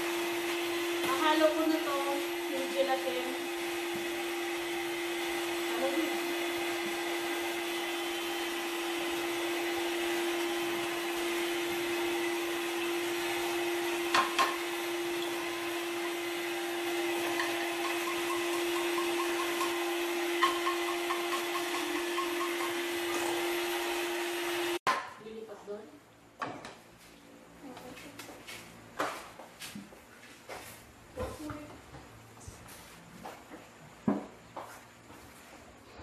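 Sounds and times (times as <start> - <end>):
electric mixer humming: 0.0 - 24.9.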